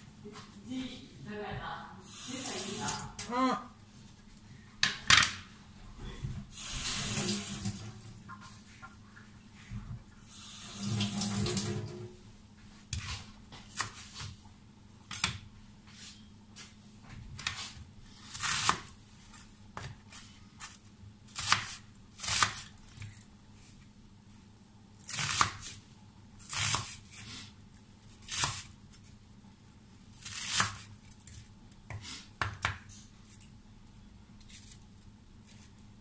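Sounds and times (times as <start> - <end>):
kitchen tap running: 2.1 - 3.2, 6.5 - 8.3, 10.3 - 12.2.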